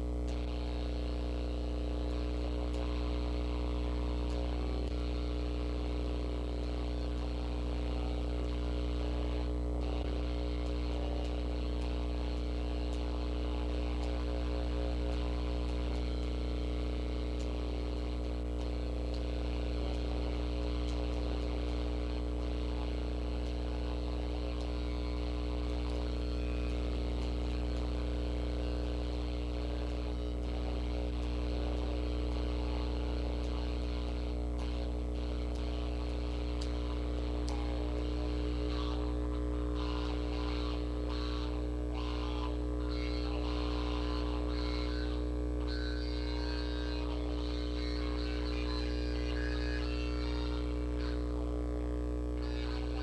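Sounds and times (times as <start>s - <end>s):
electrical hum and buzz: 0.0s - 53.0s
electric guitar: 9.5s - 51.4s, 52.2s - 53.0s.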